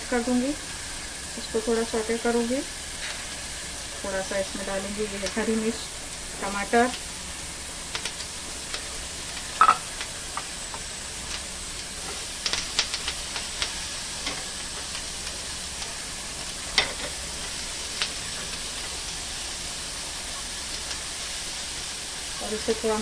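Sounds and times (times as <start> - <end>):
vegetables sizzling in butter: 0.0 - 23.0.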